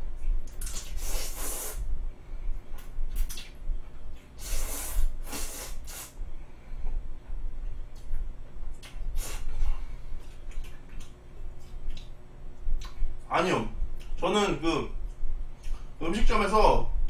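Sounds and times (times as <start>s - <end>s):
person slurping noodles: 0.6s - 1.8s, 4.4s - 6.1s.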